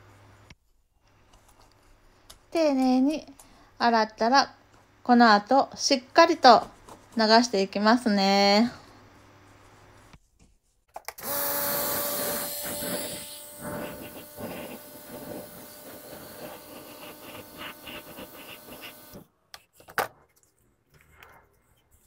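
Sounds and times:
pressure washer jet hissing: 11.2 - 19.2.

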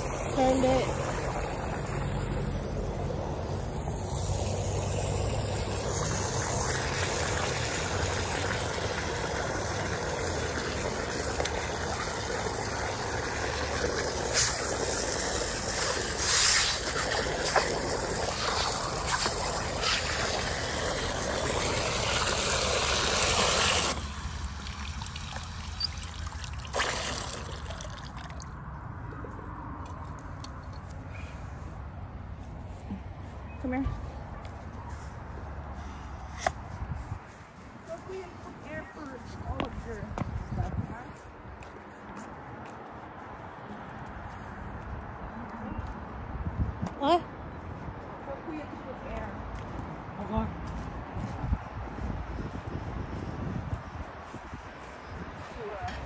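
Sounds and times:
hose water running into bucket: 0.0 - 2.8, 3.5 - 28.5.

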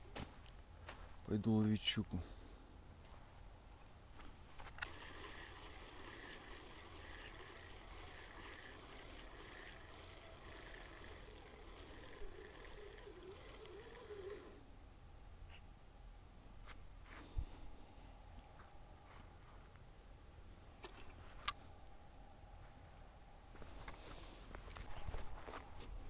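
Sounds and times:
faint outdoor ambience: 0.0 - 26.0
camera handling clicks and rustles: 4.6 - 14.4, 23.8 - 26.0.

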